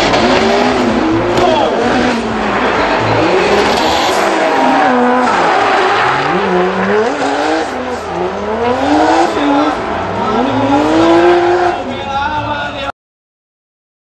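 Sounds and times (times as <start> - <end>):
car engine revving: 0.0 - 12.6
tyres skidding on tarmac: 0.0 - 12.9.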